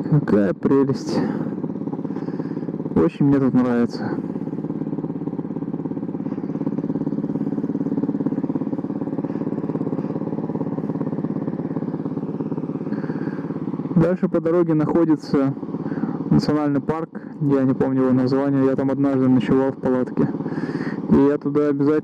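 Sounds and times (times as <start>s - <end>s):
motorcycle engine idling: 0.0s - 22.0s.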